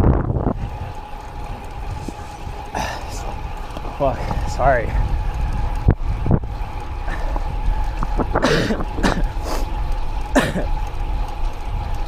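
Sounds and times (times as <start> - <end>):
wind and road noise: 0.0 - 12.0
man coughing: 8.4 - 9.3, 10.4 - 10.7.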